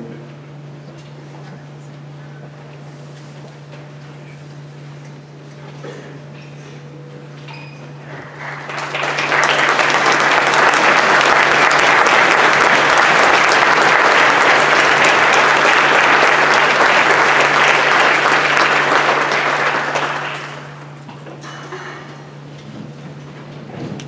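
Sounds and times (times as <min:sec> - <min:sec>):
theatre audience applauding: 0:08.1 - 0:21.0.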